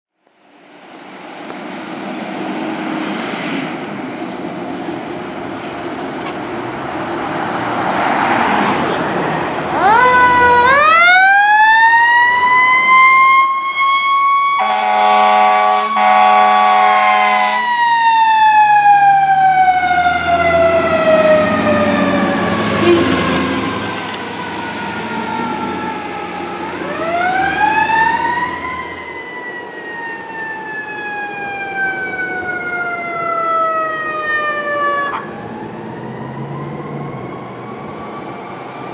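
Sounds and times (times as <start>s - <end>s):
fire engine siren wailing: 7.4s - 38.9s
air horn blast: 14.6s - 17.8s, 22.5s - 24.0s.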